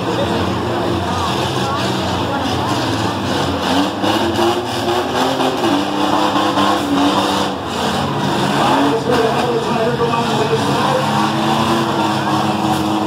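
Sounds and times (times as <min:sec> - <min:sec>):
engines revving hard: 0:00.0 - 0:13.0.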